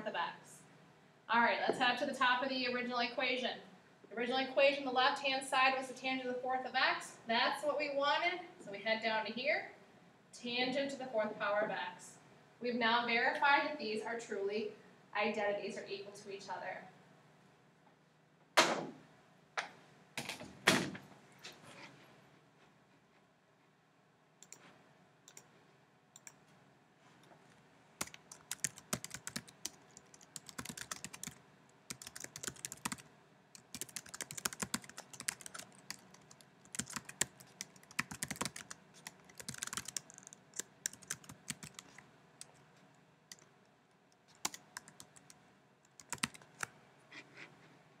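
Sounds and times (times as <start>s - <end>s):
typing on computer keyboard: 28.0s - 33.0s, 33.6s - 42.6s, 43.3s - 43.5s, 44.3s - 46.7s.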